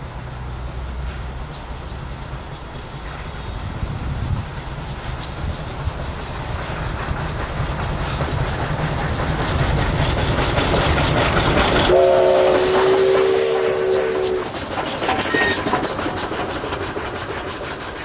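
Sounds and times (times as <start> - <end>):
train wheels clicking over rail joints: 0.0 - 18.0
steam locomotive whistle: 11.8 - 15.9.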